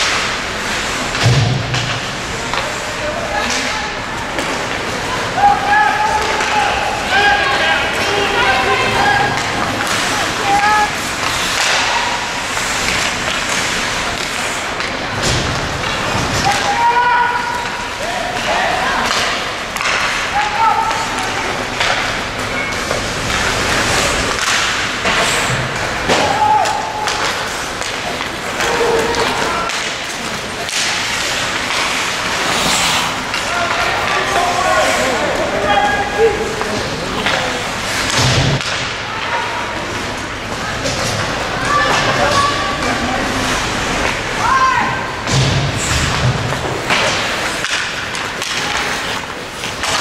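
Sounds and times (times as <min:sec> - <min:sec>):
hockey sticks and puck thuds: 0:00.0 - 0:50.0
rink noise: 0:19.0 - 0:36.4.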